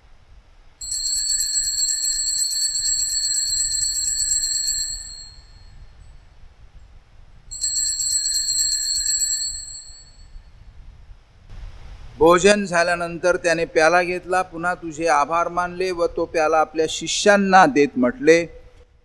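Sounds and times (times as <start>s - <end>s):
altar bells ringing: 0.8s - 5.8s, 7.5s - 10.4s.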